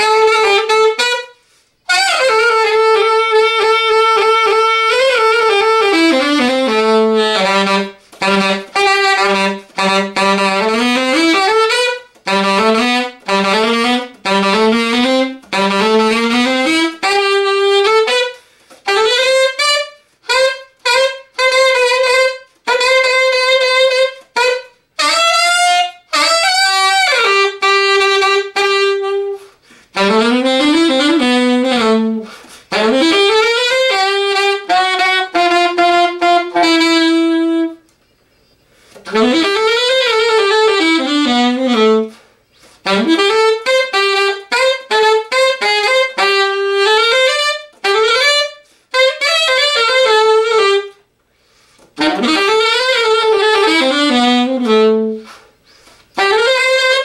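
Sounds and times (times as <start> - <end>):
solo alto saxophone jazz: 0.0 - 57.0
player breathing: 51.3 - 52.0, 55.2 - 56.2.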